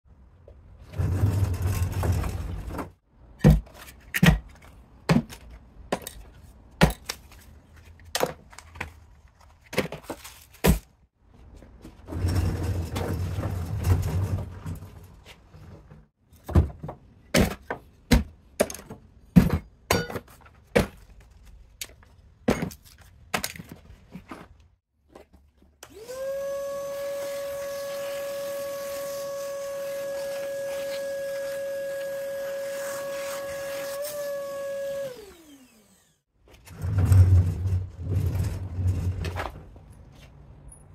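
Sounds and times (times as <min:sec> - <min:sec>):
shop vacuum motor whine: 0:25.8 - 0:36.2.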